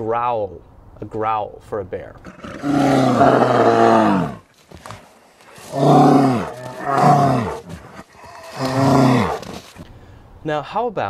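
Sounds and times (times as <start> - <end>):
bears growling: 2.2 - 9.8.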